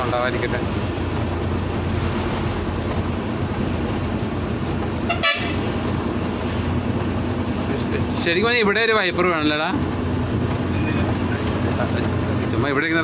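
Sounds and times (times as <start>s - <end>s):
truck engine running: 0.0s - 13.0s
short horn toot: 5.1s - 5.6s.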